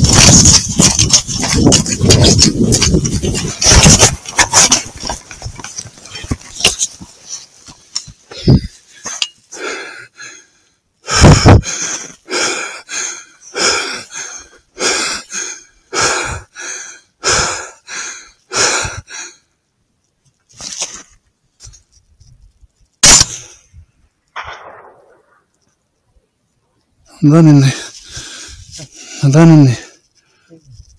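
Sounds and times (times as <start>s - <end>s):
person breathing hard: 8.2s - 19.6s, 27.8s - 30.6s.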